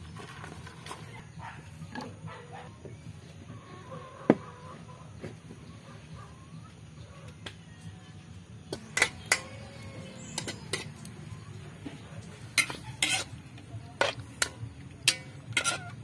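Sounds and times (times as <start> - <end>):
metal spatula clinking on a wok: 12.5 - 13.4, 14.0 - 16.0.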